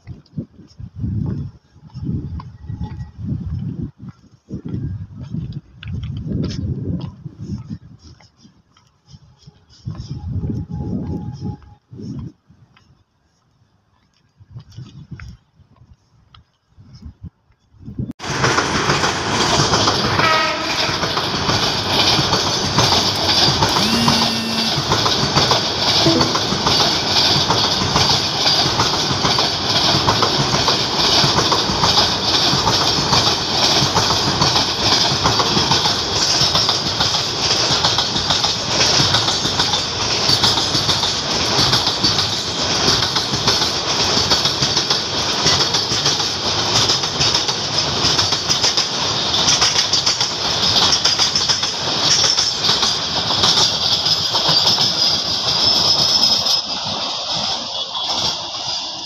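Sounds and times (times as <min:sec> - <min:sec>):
freight train wheels clattering: 0:18.2 - 0:59.0.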